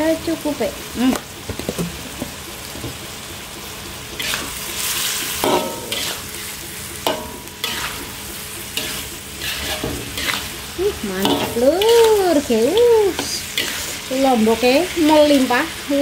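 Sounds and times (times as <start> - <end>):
food sizzling in a wok: 0.0 - 16.0
metal spatula scraping a wok: 4.2 - 15.7
spatula clanking on wok: 5.2 - 15.5.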